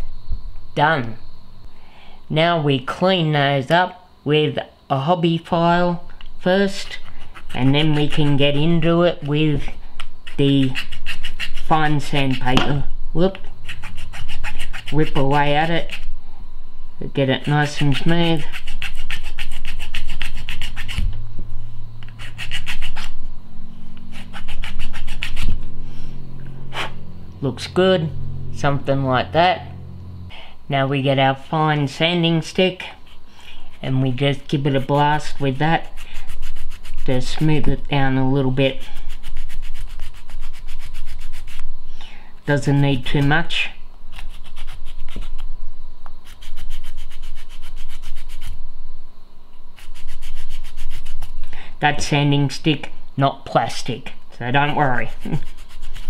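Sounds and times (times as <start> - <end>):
file rasping on plastic: 6.8 - 8.4, 10.2 - 12.5, 13.6 - 16.1, 17.4 - 21.1, 22.0 - 23.2, 24.0 - 25.6, 32.8 - 37.1, 38.7 - 41.6, 44.1 - 45.4, 46.2 - 48.6, 49.8 - 51.3, 55.0 - 56.0
sanding stick rubbing plastic: 6.8 - 8.6, 10.2 - 12.5, 13.6 - 16.1, 17.4 - 21.0, 22.0 - 23.2, 24.0 - 25.6, 32.8 - 37.5, 38.7 - 41.6, 44.1 - 45.5, 46.2 - 48.6, 49.8 - 51.4, 54.9 - 56.0.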